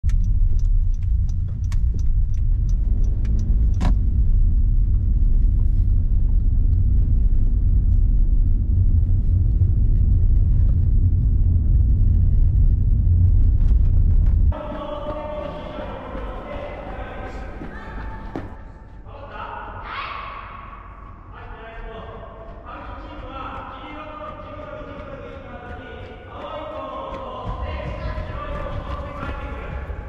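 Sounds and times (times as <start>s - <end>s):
car rumbling on the move: 0.0s - 14.6s.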